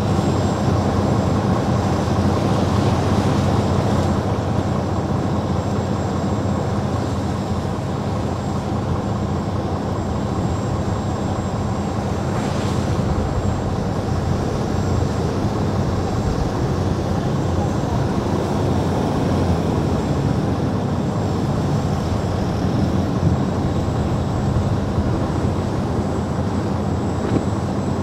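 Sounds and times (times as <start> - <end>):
outboard engines running hard: 0.0 - 28.0.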